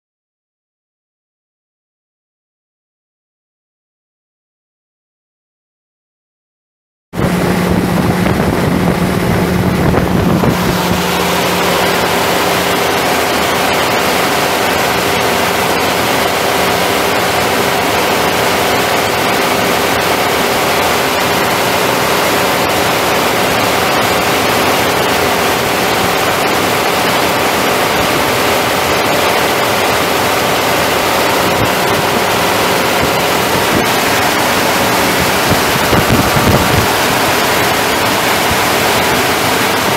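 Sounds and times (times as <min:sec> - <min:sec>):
diesel truck engine running: 0:07.2 - 0:39.9
low hum: 0:07.2 - 0:39.9.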